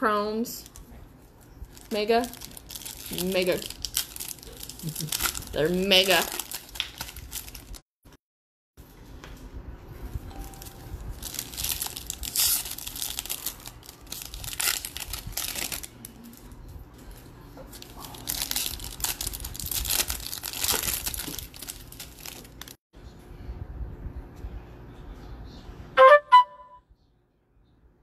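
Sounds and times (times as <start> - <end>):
card pack wrappers crinkling and tearing: 1.7 - 7.8, 10.5 - 16.6, 17.7 - 22.8.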